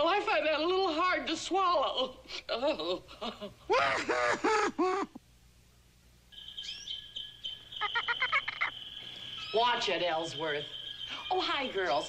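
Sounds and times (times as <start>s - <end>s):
cartoon hyena cackling: 3.7s - 5.2s, 7.8s - 8.8s
cage birds chirping: 6.3s - 12.0s
rapid bird trill: 6.3s - 12.0s
steady high whistle: 6.3s - 12.0s.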